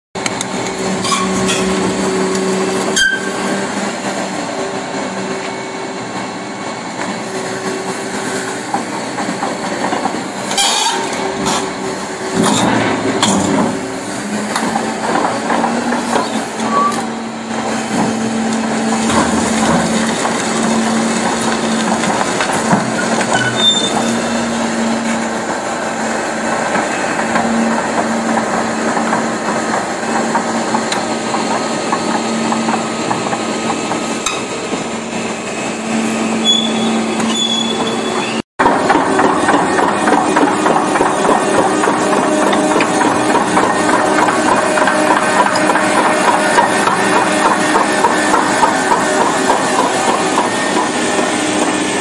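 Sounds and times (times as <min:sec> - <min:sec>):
crawler tracks clanking on concrete: 0:00.2 - 0:52.0
machine engine running: 0:11.1 - 0:37.2, 0:38.6 - 0:52.0.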